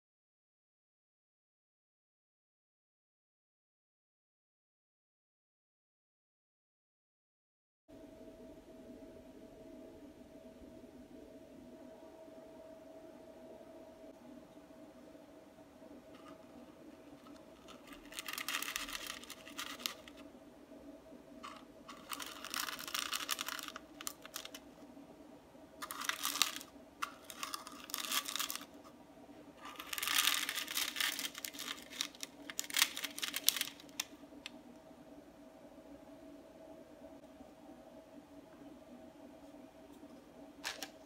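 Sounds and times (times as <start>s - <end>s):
faint steady hum: 7.9s - 41.0s
dough crinkling and crackling: 16.1s - 20.3s, 21.4s - 24.7s, 25.8s - 29.0s, 29.6s - 34.2s.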